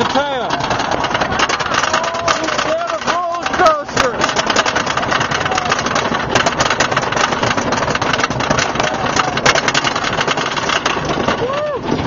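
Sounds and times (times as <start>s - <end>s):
lift chain clattering: 0.0s - 12.0s
lift machinery humming: 0.0s - 12.0s
ratcheting dogs: 0.0s - 12.0s.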